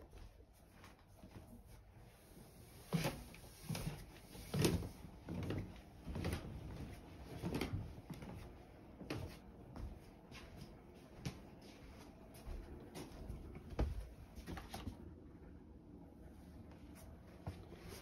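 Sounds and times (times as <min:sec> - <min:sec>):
footsteps on wooden stairs: 0:03.7 - 0:15.0.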